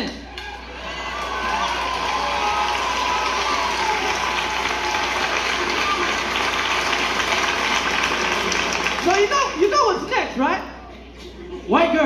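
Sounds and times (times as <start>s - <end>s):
voices shouting: 0.4s - 7.4s
audience applauding: 0.6s - 9.7s.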